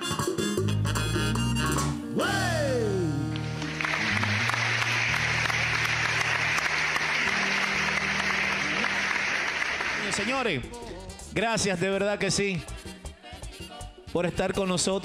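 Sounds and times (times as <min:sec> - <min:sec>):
background music: 0:00.0 - 0:15.0
applause: 0:03.3 - 0:10.6.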